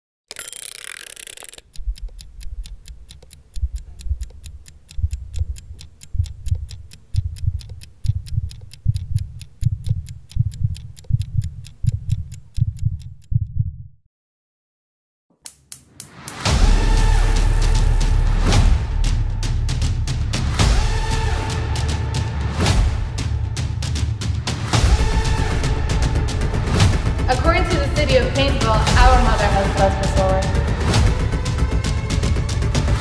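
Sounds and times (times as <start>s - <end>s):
timer dial scraping turn: 0.3s - 13.6s
timer ticking: 0.3s - 13.9s, 24.8s - 33.0s.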